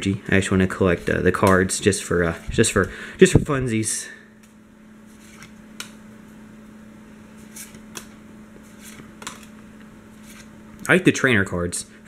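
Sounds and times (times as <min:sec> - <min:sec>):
steady low hum: 0:00.0 - 0:12.0
cards sliding over cards: 0:04.4 - 0:06.0, 0:07.3 - 0:10.5.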